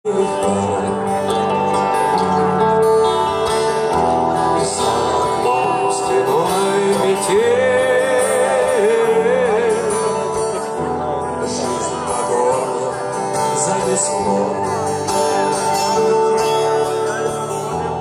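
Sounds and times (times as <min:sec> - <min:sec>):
live rock band: 0:00.0 - 0:18.0.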